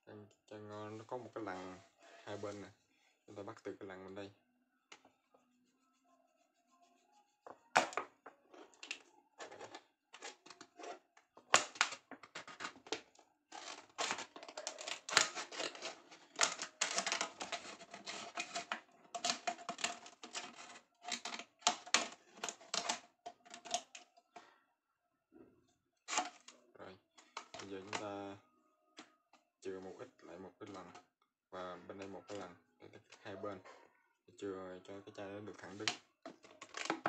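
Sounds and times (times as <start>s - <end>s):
scissors snipping plastic bottle: 13.6s - 23.9s.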